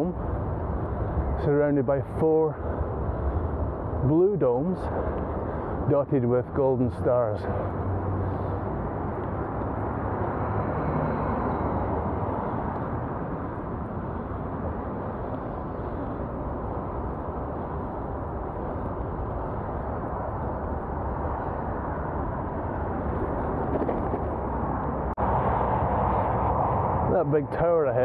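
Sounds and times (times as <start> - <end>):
bicycle road noise: 0.0 - 28.0
wind on microphone: 7.6 - 27.1.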